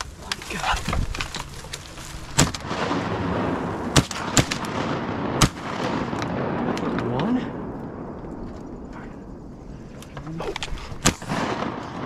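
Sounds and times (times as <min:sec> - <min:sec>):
shotgun shots with echo: 0:02.4 - 0:07.2, 0:11.0 - 0:12.0.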